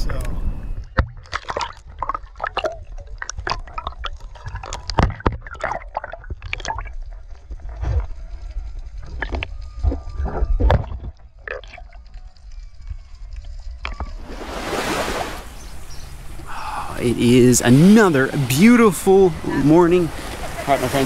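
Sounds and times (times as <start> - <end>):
water sloshing and gurgling: 0.8 - 8.2, 14.0 - 21.0
splashes and drips: 1.0 - 8.0, 14.2 - 16.5.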